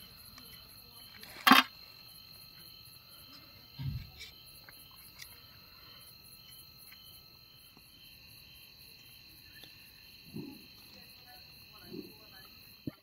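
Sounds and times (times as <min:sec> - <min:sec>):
crickets chirring: 0:00.0 - 0:13.0
dull thump: 0:03.8 - 0:04.2.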